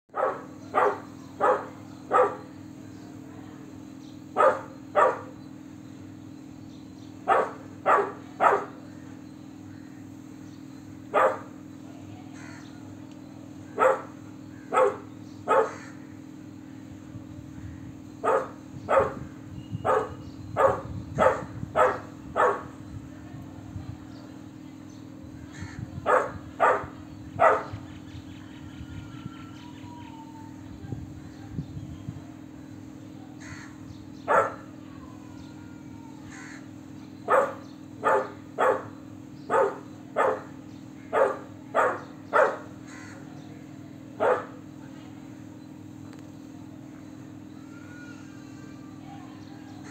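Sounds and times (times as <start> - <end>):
puppy barking: 0.1 - 2.5, 4.4 - 5.4, 7.3 - 8.8, 11.1 - 11.5, 13.8 - 15.9, 18.2 - 19.2, 19.8 - 22.7, 26.0 - 27.8, 34.3 - 34.7, 37.3 - 42.7, 44.2 - 44.6.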